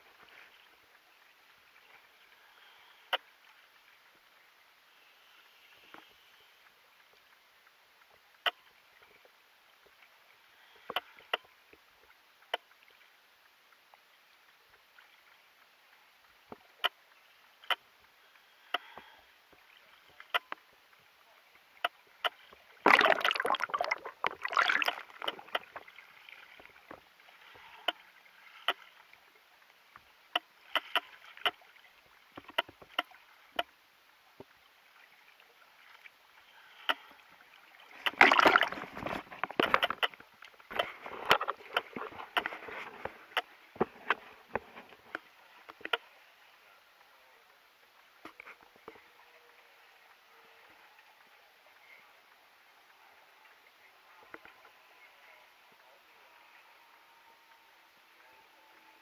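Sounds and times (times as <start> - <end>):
water sloshing and splashing: 21.8 - 29.6, 34.8 - 46.0.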